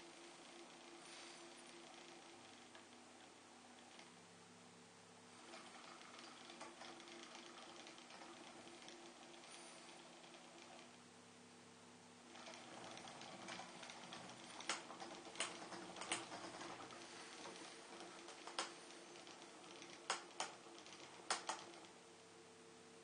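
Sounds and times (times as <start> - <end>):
small motor humming: 0.0 - 4.2, 5.3 - 11.0, 12.2 - 22.0
sharp clicks: 18.0 - 21.9.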